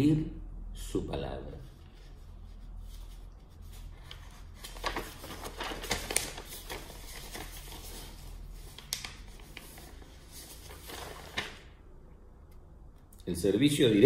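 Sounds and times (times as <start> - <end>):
paper rustling and crackling: 1.8 - 11.8.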